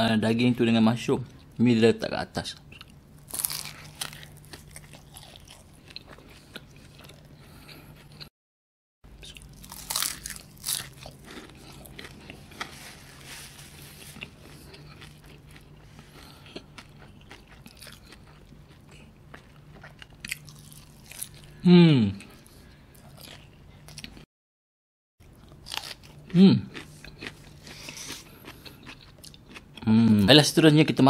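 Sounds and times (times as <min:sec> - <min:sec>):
pastry crunching: 0:03.2 - 0:08.0, 0:09.2 - 0:21.5
wet chewing: 0:13.7 - 0:21.5, 0:25.2 - 0:29.7.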